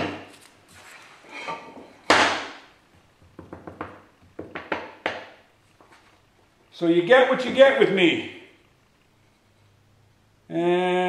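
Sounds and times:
hand plane knocking on workbench: 3.2 - 5.3.

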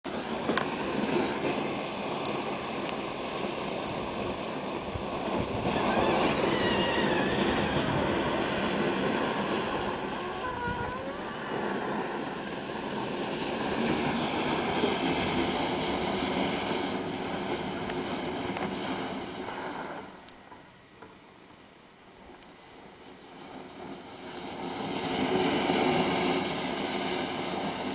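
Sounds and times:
flame jetting rushing noise: 0.1 - 20.5, 22.0 - 27.9
wavering whistle-like tones: 5.6 - 11.7.

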